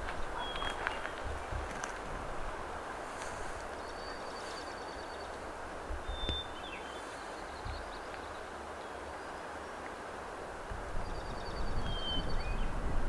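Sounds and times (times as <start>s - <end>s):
wind rumbling on microphone: 0.0s - 8.6s, 10.2s - 13.0s
faint high bird chirps: 6.0s - 8.4s.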